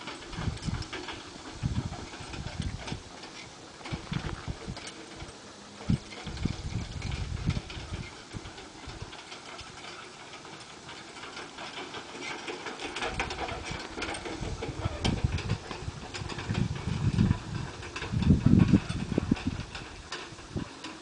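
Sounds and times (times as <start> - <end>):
cart rattling: 0.0 - 21.0
muffled hoofbeats on sand: 3.9 - 21.0
low rumbling bursts: 13.1 - 20.7.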